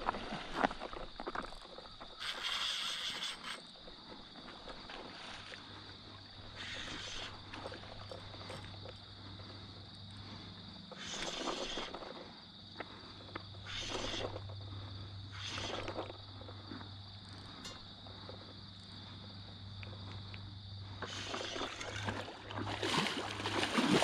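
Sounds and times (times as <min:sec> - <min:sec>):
water lapping: 0:00.0 - 0:18.4, 0:20.0 - 0:24.0
short hissing splashes: 0:02.2 - 0:03.6, 0:06.6 - 0:07.7, 0:10.9 - 0:12.2, 0:13.6 - 0:14.4, 0:15.3 - 0:16.1, 0:21.0 - 0:24.0.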